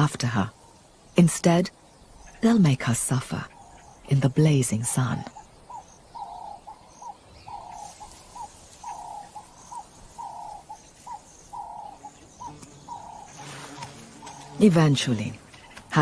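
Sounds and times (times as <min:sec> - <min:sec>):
dove cooing: 0:05.2 - 0:15.9.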